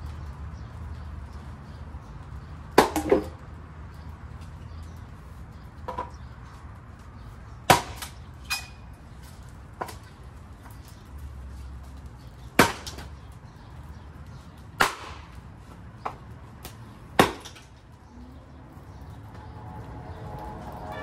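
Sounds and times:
steady low rumble: 18.0s - 21.0s.

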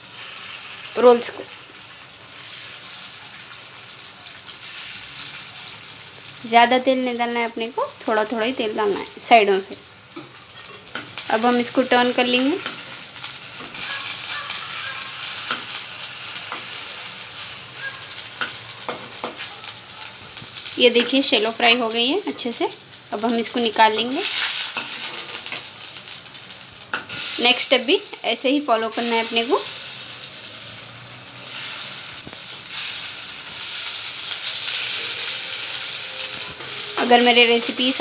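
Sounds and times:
food sizzling in oil: 0.0s - 38.0s
metal spatula scraping a pan: 11.8s - 16.9s, 23.9s - 25.7s.

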